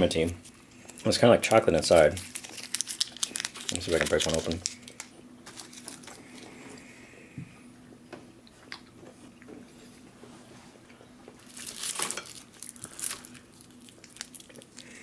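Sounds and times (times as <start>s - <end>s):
hard candy crunching: 0.0s - 6.5s, 11.4s - 15.0s.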